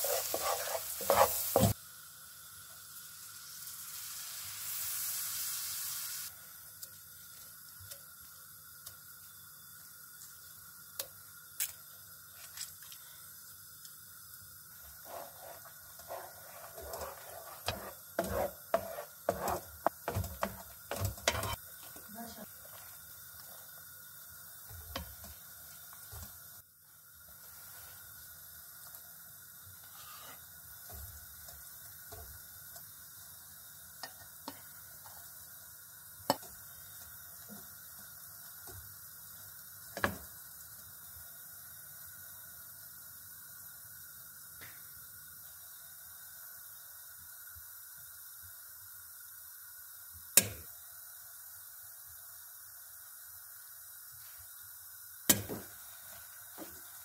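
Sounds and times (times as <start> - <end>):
spoon stirring and scraping: 0.0 - 1.8, 14.8 - 22.0, 22.6 - 23.7
sauce simmering in a pan: 0.0 - 57.0.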